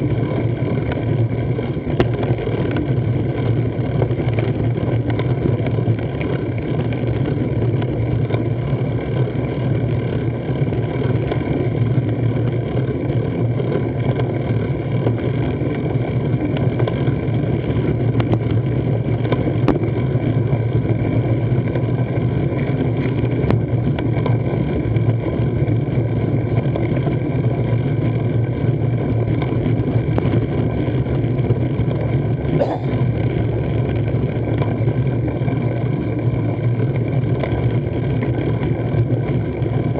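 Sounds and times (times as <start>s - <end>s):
constant hum tones: 0.0s - 39.9s
low rumble: 32.3s - 33.8s.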